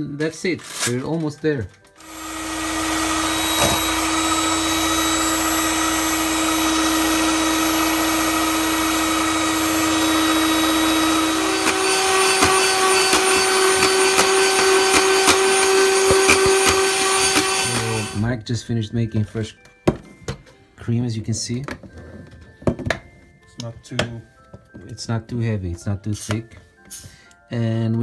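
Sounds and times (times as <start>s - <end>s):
electric mixer running: 2.0s - 18.2s.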